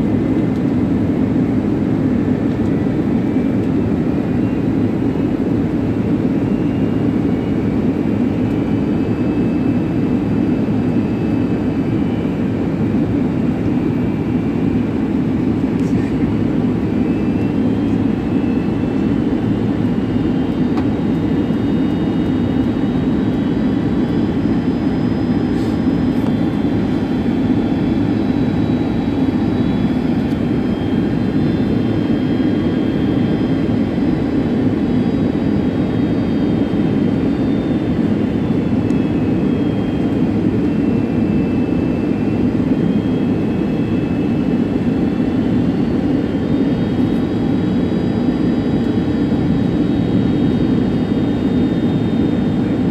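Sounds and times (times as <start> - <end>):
airliner cabin engine rush: 0.0 - 52.9
faint high whine: 2.7 - 52.9.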